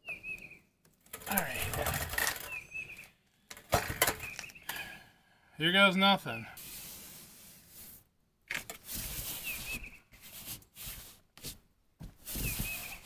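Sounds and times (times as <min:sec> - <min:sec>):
hand rubbing over tape: 0:06.6 - 0:13.0.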